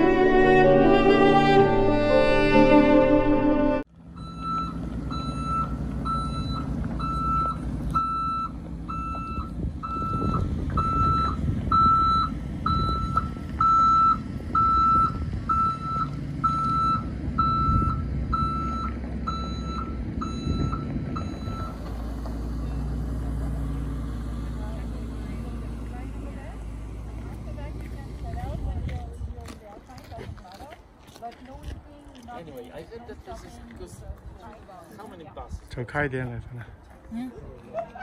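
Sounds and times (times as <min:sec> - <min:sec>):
bus engine running: 0:00.0 - 0:29.5
reversing alarm beeping: 0:04.1 - 0:21.8.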